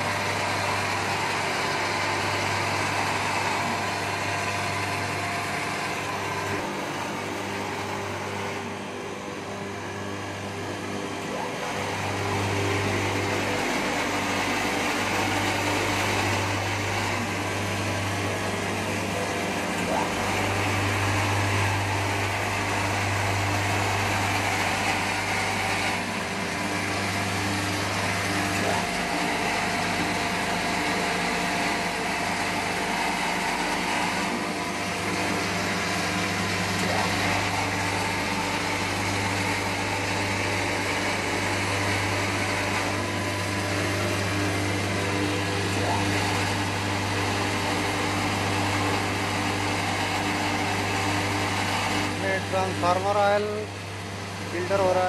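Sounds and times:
motors and pumps humming: 0:00.0 - 0:55.0.

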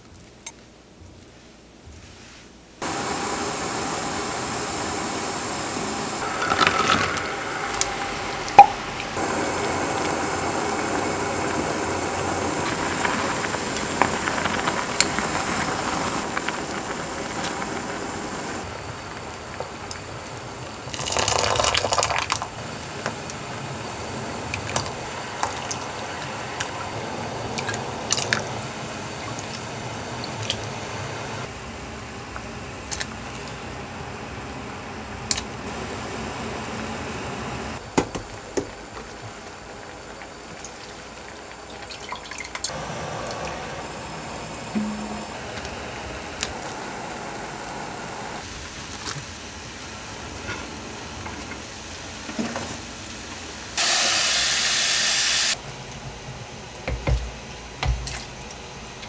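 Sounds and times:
liquid bubbling in a saucepan: 0:06.2 - 0:33.9, 0:37.6 - 0:52.2
broth simmering in a pot: 0:06.2 - 0:54.4.

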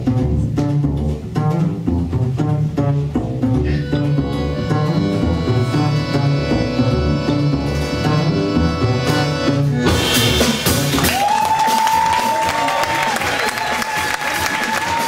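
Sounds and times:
accordion chords: 0:00.0 - 0:10.9
plucked double bass: 0:00.0 - 0:11.3
drums and cymbals crashing: 0:09.1 - 0:15.0.

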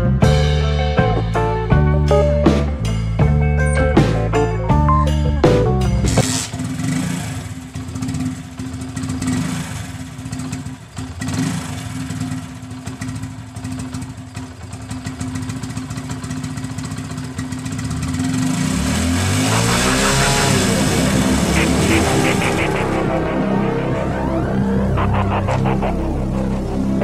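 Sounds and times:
music: 0:00.0 - 0:06.2, 0:19.6 - 0:27.0
motorcycle engine idling: 0:06.1 - 0:27.0.

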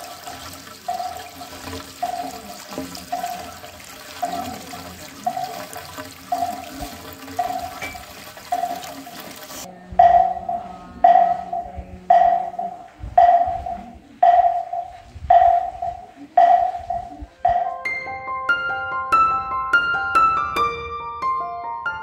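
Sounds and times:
running water: 0:00.0 - 0:17.8
wooden fish drum strikes: 0:10.0 - 0:17.9.

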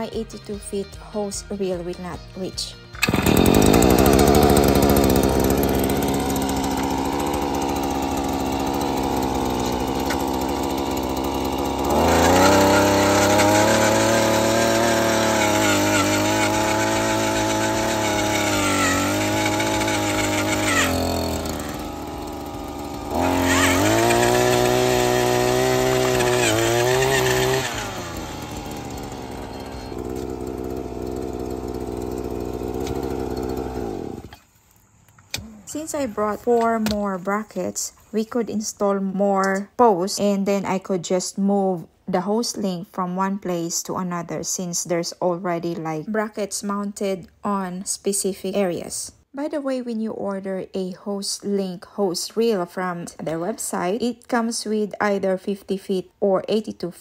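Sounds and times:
auger engine idling and revving: 0:03.0 - 0:34.4.

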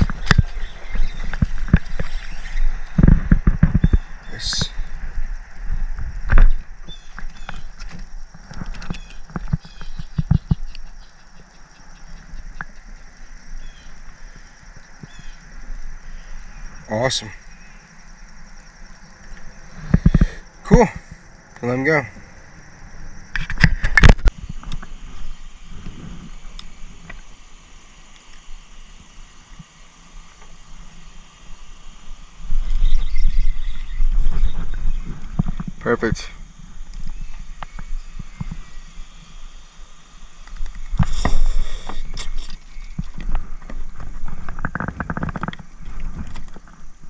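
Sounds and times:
scattered ticks: 0:00.0 - 0:15.2, 0:18.6 - 0:21.8, 0:40.4 - 0:47.0
faint steady hiss: 0:00.0 - 0:47.0
fishing rods knocking and rattling: 0:07.1 - 0:12.9, 0:40.6 - 0:46.8.

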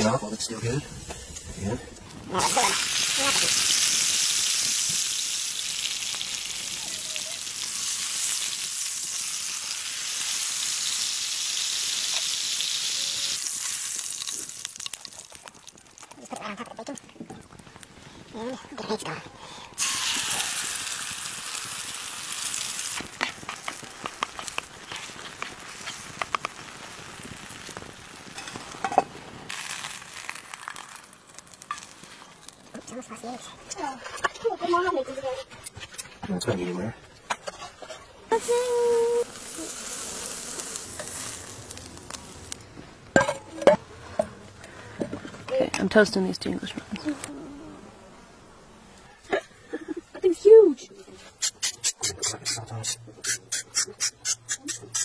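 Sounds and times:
steak sizzling in a frying pan: 0:02.3 - 0:16.2, 0:19.8 - 0:33.0, 0:38.3 - 0:42.6.

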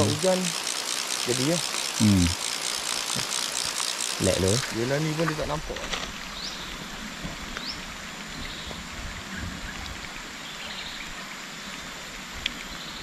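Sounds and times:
rain falling: 0:00.0 - 0:09.2.

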